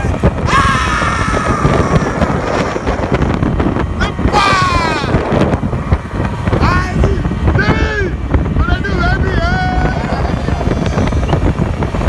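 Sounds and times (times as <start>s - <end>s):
wind buffeting microphone: 0.0s - 12.0s
man calling out: 4.0s - 5.4s, 6.6s - 11.3s.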